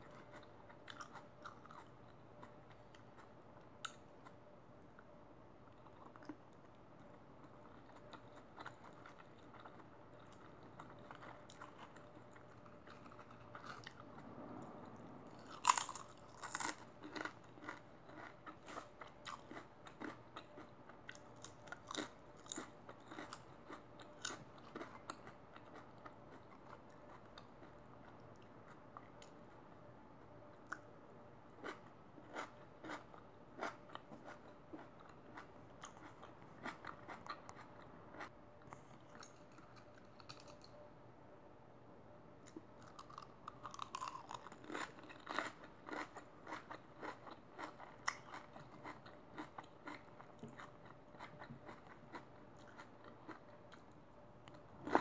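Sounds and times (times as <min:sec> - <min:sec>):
soft chewing: 0:00.0 - 0:30.9, 0:31.5 - 0:40.9, 0:42.4 - 0:55.0
crunching potato chips: 0:15.3 - 0:28.2, 0:31.6 - 0:40.8, 0:42.8 - 0:55.0.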